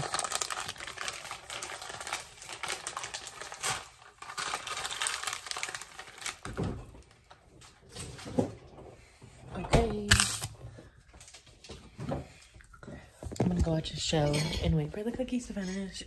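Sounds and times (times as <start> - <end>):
plastic packaging crinkling: 0.0 - 7.8, 9.8 - 10.6.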